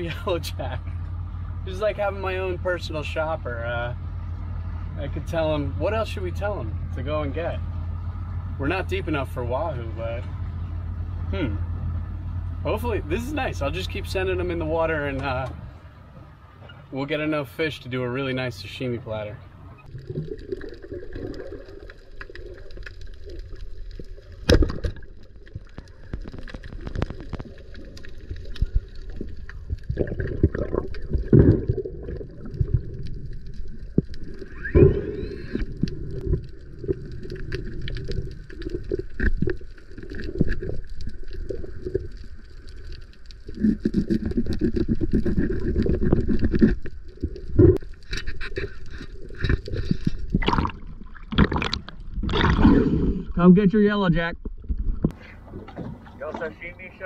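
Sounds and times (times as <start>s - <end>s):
muffled underwater gurgling: 24.4s - 42.6s.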